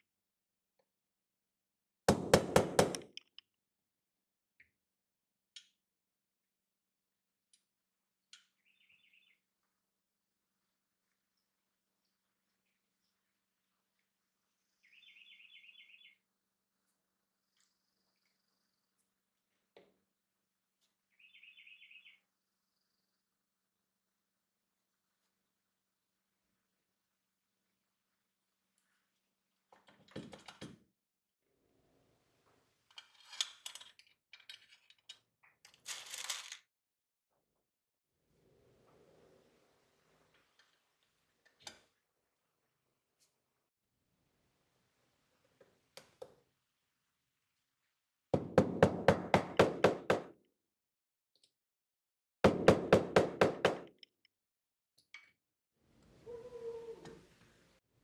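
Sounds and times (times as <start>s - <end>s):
small metal parts clicking and rattling: 32.9s - 36.6s.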